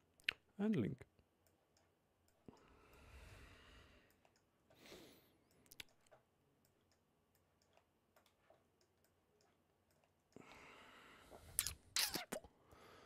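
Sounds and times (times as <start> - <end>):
soft breath in: 2.5 - 5.4, 10.4 - 11.6.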